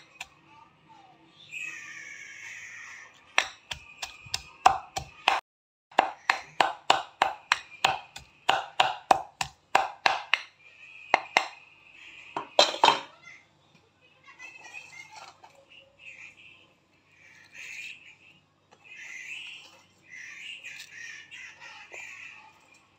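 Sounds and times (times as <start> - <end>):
stone pestle pounding in mortar: 3.4 - 10.5.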